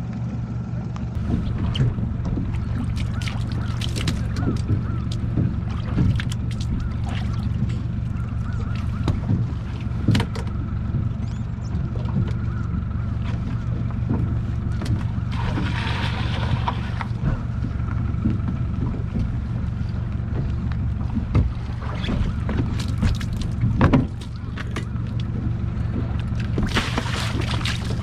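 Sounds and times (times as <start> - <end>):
low motor drone: 0.0 - 28.0
knocks on boat deck: 1.2 - 7.8, 8.5 - 15.2, 20.2 - 27.0
water splashing into sea: 1.2 - 28.0.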